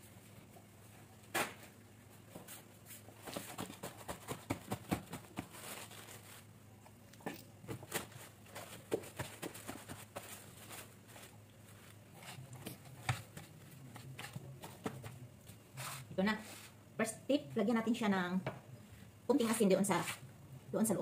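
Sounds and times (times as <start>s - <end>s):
paper towels rustling and crinkling: 5.2s - 6.5s, 7.8s - 14.4s.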